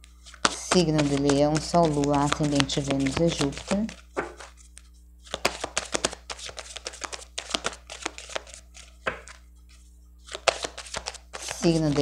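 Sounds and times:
cards being shuffled: 0:00.0 - 0:12.0.

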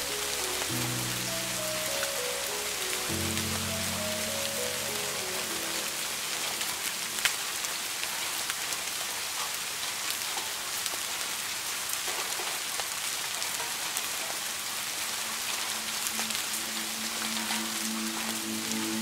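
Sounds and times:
soft low musical tones: 0:00.0 - 0:08.0, 0:15.1 - 0:19.0
steady rain: 0:00.0 - 0:19.0.

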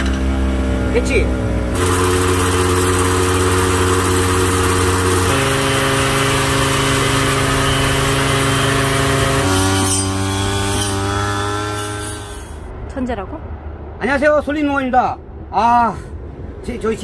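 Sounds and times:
brush cutter engine running: 0:00.0 - 0:12.6.

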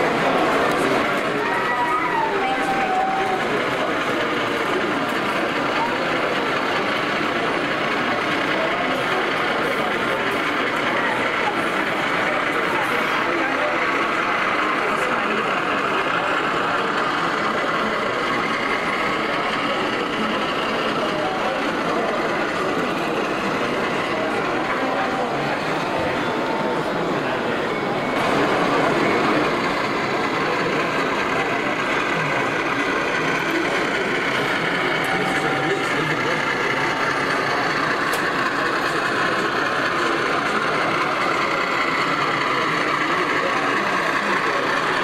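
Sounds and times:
model train wheels rumbling on rails: 0:00.0 - 0:45.0
model train motor whirring: 0:28.8 - 0:45.0.

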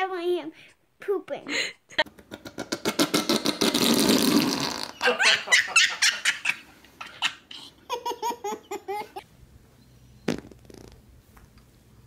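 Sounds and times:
high-pitched giggles: 0:05.0 - 0:09.2.

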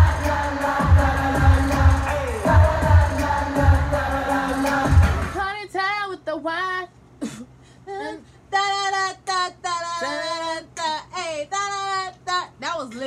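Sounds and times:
loud concert music with bass beat: 0:00.0 - 0:05.4
woman singing unaccompanied: 0:07.9 - 0:13.0.

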